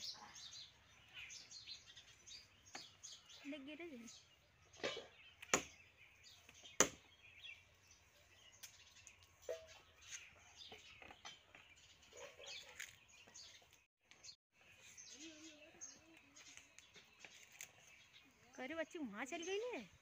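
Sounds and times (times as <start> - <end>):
branches cracking: 16.5 - 18.1.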